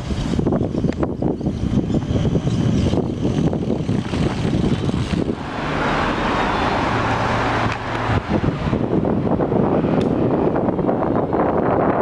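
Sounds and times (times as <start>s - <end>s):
wind buffeting microphone: 0.0s - 12.0s
car passing: 3.2s - 11.6s.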